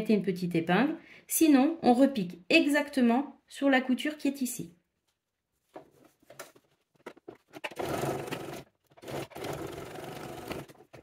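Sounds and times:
sewing machine stitching: 7.5 - 11.0.

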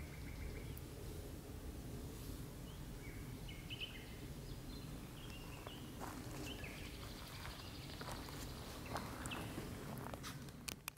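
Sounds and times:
nightingale singing: 2.6 - 9.6.

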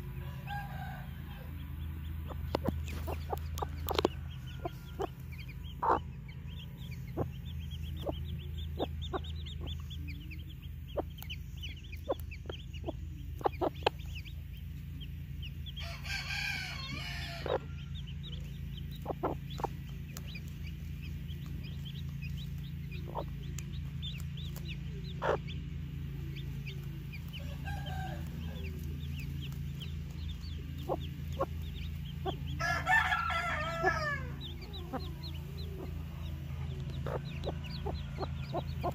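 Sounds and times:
chicks peeping: 0.0 - 38.9
hen clucking: 0.0 - 38.9
loud chicken call: 15.8 - 17.7, 32.6 - 34.4.

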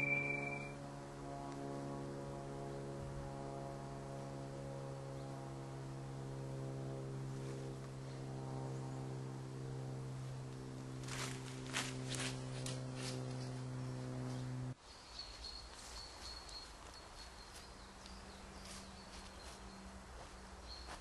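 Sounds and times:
low eerie drone: 0.0 - 14.8.

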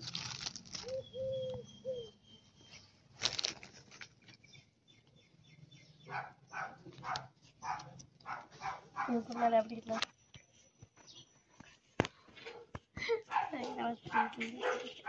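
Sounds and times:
cellophane bags crinkling: 0.0 - 1.0, 3.2 - 4.2.

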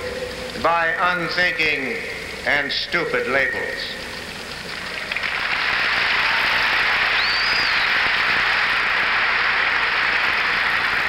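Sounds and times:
crowd applauding and cheering: 4.6 - 11.0
short whistle: 7.2 - 8.0.

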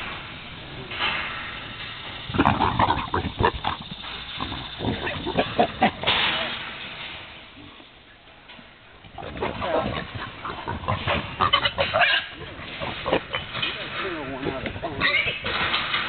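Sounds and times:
pigs calling: 2.1 - 6.2, 9.1 - 15.8.

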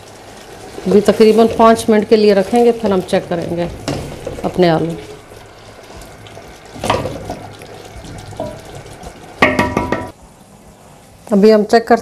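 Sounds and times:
pot lid knock: 9.4 - 10.2.

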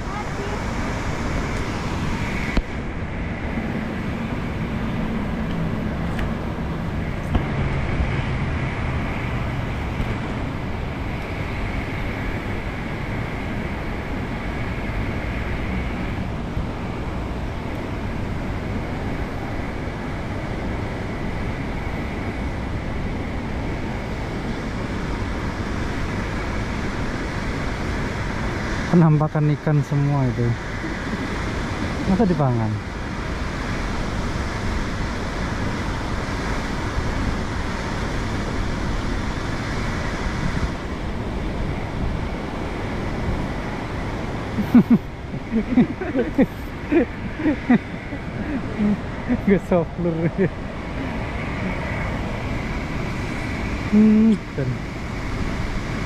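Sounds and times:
steady traffic noise: 0.0 - 56.0
vehicle engine hum passing: 0.0 - 56.0.

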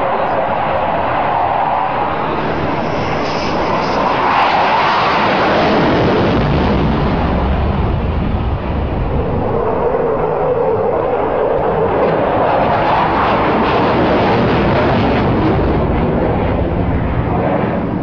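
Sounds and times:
fighter jet passing low: 0.0 - 18.0
deep rumble: 5.6 - 18.0.

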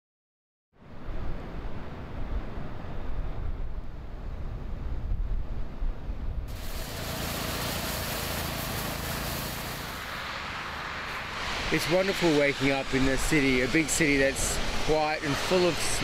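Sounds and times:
wind rumble on microphone: 0.8 - 6.7
hiss of snow being thrown: 6.5 - 16.0
snowblower engine drone: 6.5 - 16.0.

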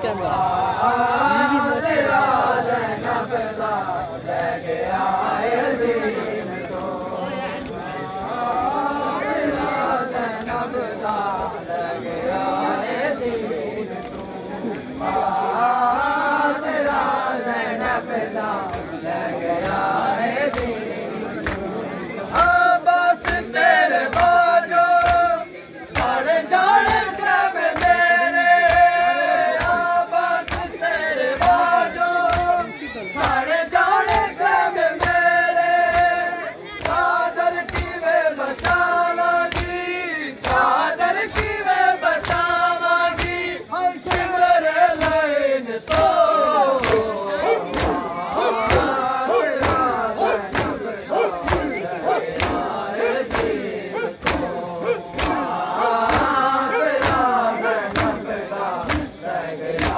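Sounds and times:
crowd chanting in unison: 0.0 - 59.9
hands slapping chests: 29.6 - 29.8, 30.5 - 30.7, 31.4 - 33.4, 39.5 - 39.8, 45.9 - 46.2, 46.8 - 59.2.

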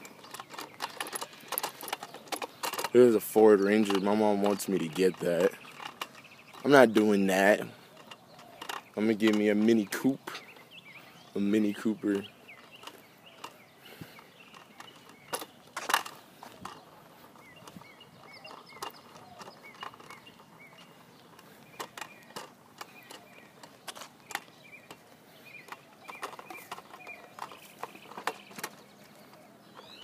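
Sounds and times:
footsteps: 0.0 - 7.0
kick scooter knocking and rattling: 0.0 - 30.0.

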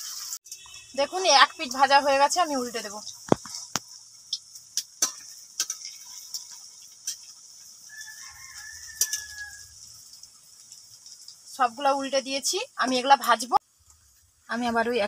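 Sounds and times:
metal spatula scraping wok: 0.0 - 3.8
food sizzling in hot oil: 0.0 - 15.0.

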